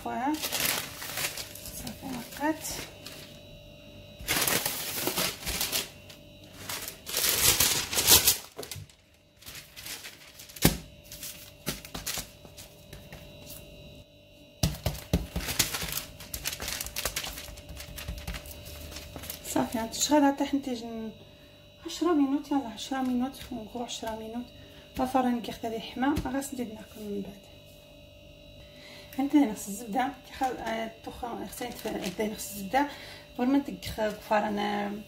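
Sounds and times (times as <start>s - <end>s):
parchment paper crinkling: 0.0s - 3.4s, 4.2s - 12.8s, 14.8s - 19.7s, 31.5s - 32.7s.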